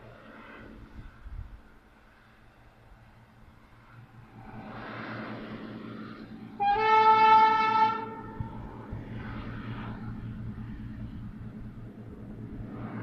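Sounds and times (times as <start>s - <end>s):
low pulsing machine drone: 0.0s - 13.0s
train horn blast: 6.5s - 8.7s.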